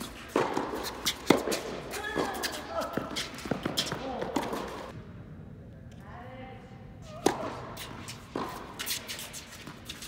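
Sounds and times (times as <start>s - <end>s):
racket hitting tennis ball: 0.0s - 4.9s, 7.1s - 10.0s.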